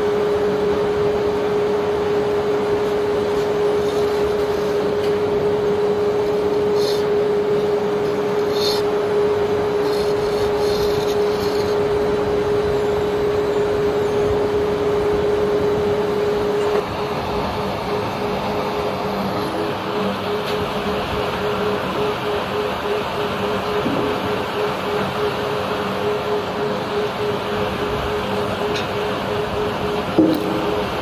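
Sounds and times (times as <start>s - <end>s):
machine hum: 0.0s - 31.0s.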